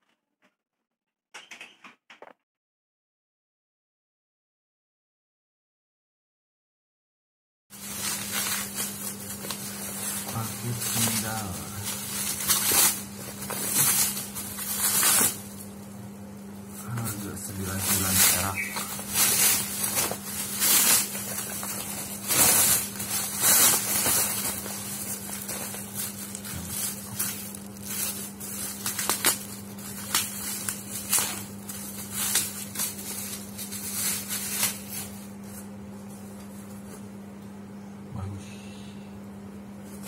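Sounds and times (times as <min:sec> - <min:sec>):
steady low hum: 0:07.7 - 0:40.0
plastic packaging crinkling: 0:07.8 - 0:15.9, 0:16.7 - 0:36.9.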